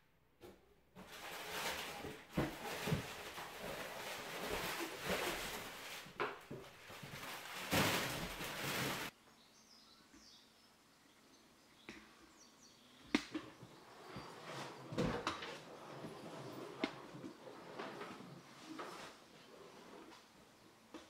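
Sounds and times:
plastic film rustling and crinkling: 1.0s - 9.2s.

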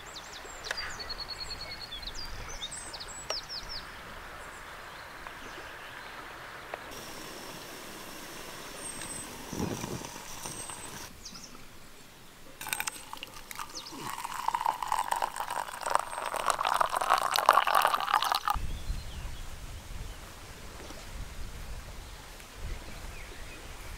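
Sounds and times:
coffee pouring into a mug: 6.9s - 11.1s, 12.6s - 18.6s.

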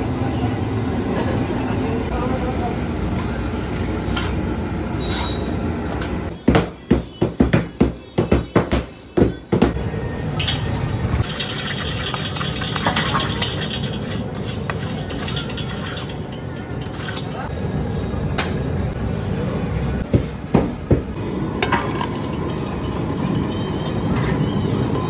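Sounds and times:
street noise: 0.0s - 25.0s
metal scraping in iron pan: 10.4s - 17.4s.

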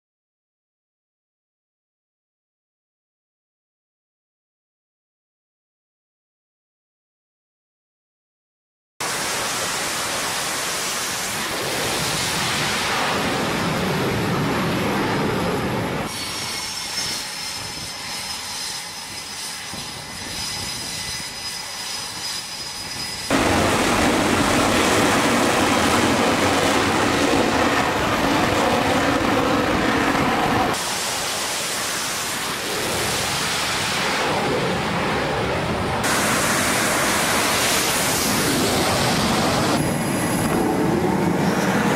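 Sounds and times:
high turbine whine: 9.0s - 41.9s
jet engines running: 9.0s - 41.9s.

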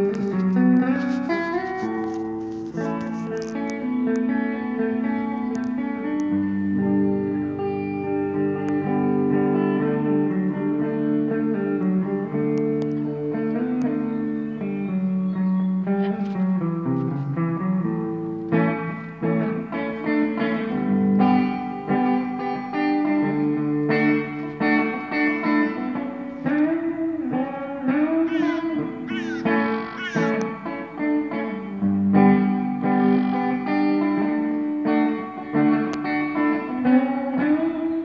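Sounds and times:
gliding guitar notes: 0.0s - 38.0s
plucked guitar notes: 0.0s - 38.0s.

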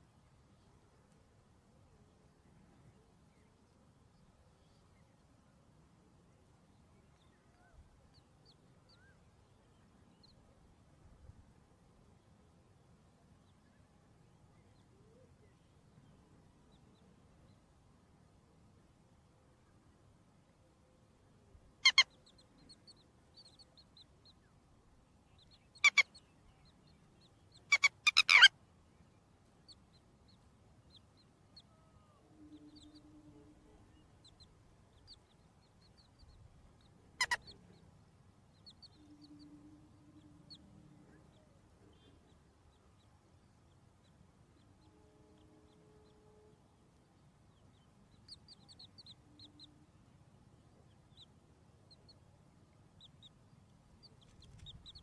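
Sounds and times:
chicks peeping softly: 6.4s - 11.4s, 21.8s - 55.0s.

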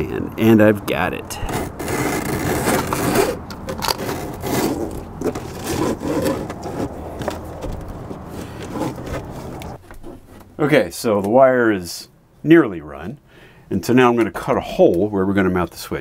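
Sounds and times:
cable scraping against panels: 1.1s - 10.8s.

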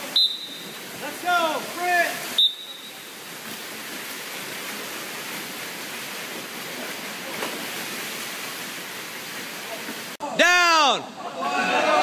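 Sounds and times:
loud whistle blast: 0.0s - 0.8s, 2.4s - 3.1s
swimmers splashing: 0.0s - 10.2s.

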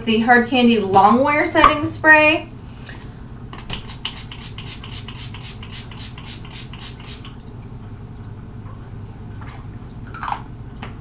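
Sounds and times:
pump spray bottle spritzing: 3.6s - 7.4s.

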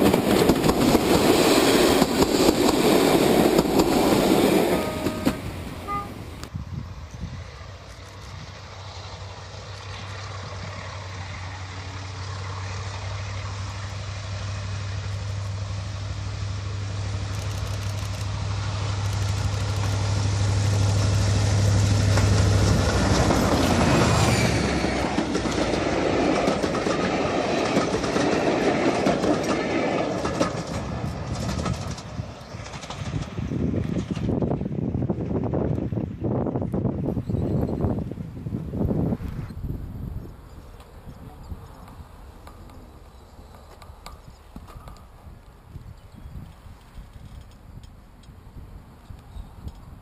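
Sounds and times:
train coaches rumbling over rail joints: 0.0s - 6.5s, 11.1s - 39.2s
diesel locomotive engine drone: 0.0s - 50.0s.

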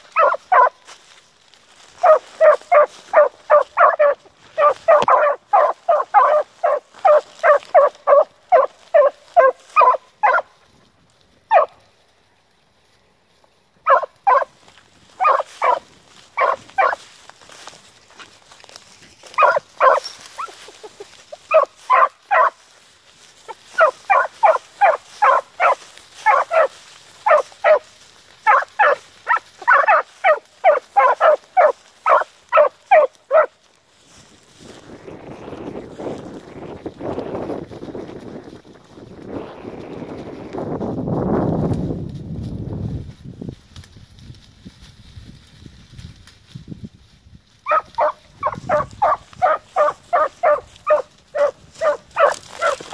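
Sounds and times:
hounds barking rapidly: 0.0s - 0.9s, 2.0s - 10.7s, 11.5s - 11.8s, 13.8s - 17.1s, 19.2s - 22.7s, 23.4s - 33.6s, 47.6s - 52.9s.

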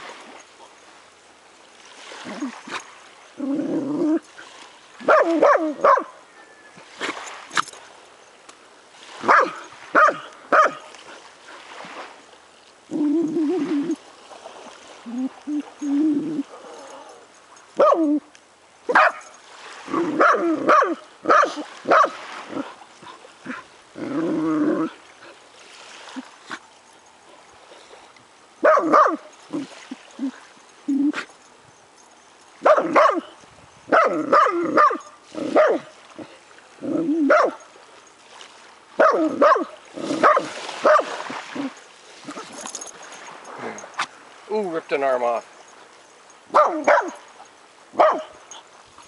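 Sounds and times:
dog barking and yipping: 5.0s - 6.2s, 9.2s - 10.8s, 17.8s - 18.3s, 18.9s - 22.7s, 28.6s - 29.4s, 32.6s - 33.3s, 33.9s - 35.9s, 37.2s - 37.6s, 39.0s - 41.8s, 46.5s - 48.6s.

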